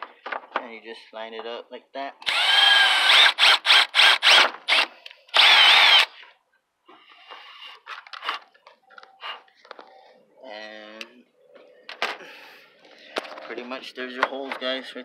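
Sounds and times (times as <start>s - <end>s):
cordless drill bursts: 2.2s - 6.2s.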